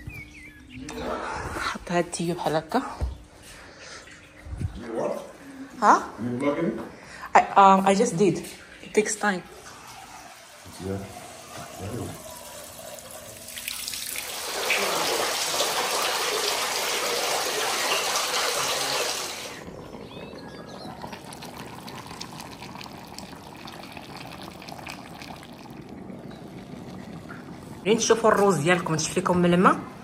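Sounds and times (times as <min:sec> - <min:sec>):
fountain water splashing: 0:11.3 - 0:27.9.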